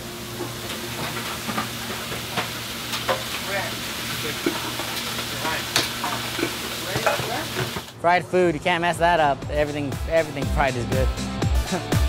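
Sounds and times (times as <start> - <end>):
food sizzling on a griddle: 0.0 - 7.9.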